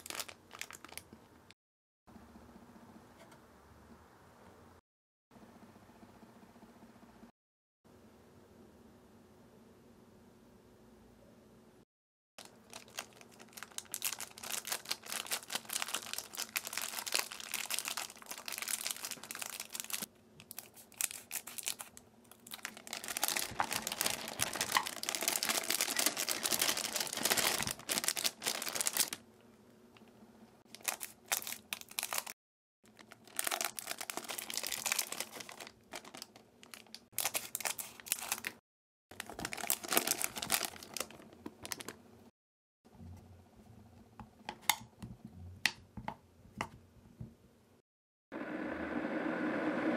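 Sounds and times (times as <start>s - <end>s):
foil wrappers crinkling and tearing: 0.0s - 1.1s, 12.4s - 29.2s, 30.7s - 42.0s.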